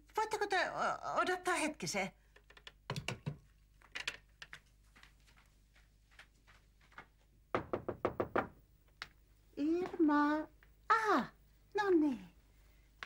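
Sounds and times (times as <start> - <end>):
soft footsteps in hallway: 3.4 - 8.6.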